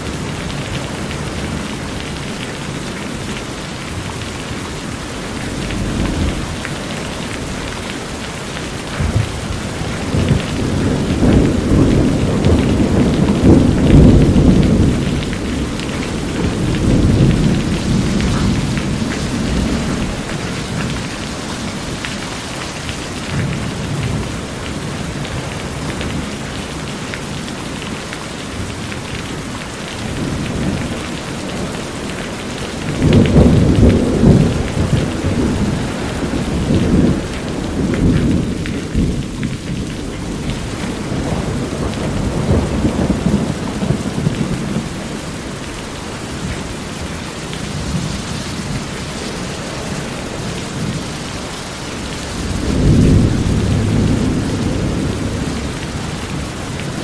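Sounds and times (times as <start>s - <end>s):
rain on a metal roof: 0.0s - 57.0s
rolling thunder: 5.1s - 22.2s, 30.0s - 45.4s, 52.0s - 57.0s.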